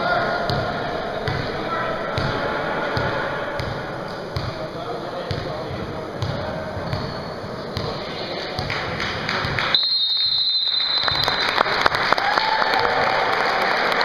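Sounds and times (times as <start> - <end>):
crowd murmuring: 0.0 - 9.6
basketball thumping on floor: 3.0 - 3.8.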